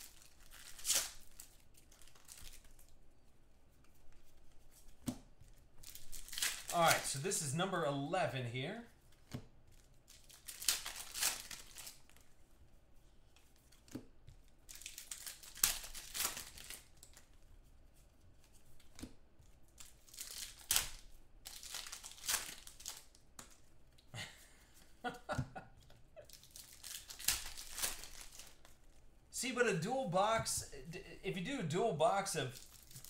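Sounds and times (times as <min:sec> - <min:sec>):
foil wrappers tearing and crinkling: 0:00.0 - 0:02.9, 0:05.8 - 0:07.2, 0:10.1 - 0:12.2, 0:14.7 - 0:17.3, 0:19.8 - 0:23.2, 0:26.3 - 0:28.8, 0:32.5 - 0:33.0
cards handled: 0:13.3 - 0:17.4.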